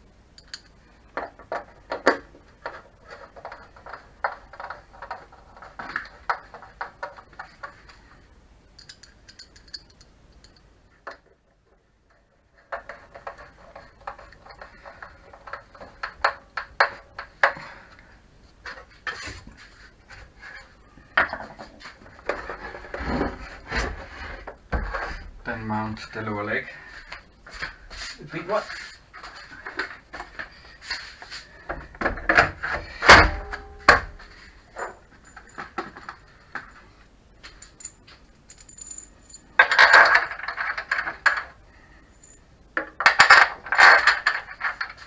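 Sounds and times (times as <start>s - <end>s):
clicks and clatter of plastic parts: 0.4s - 8.1s, 12.1s - 17.7s, 39.6s - 41.6s, 42.8s - 45.0s.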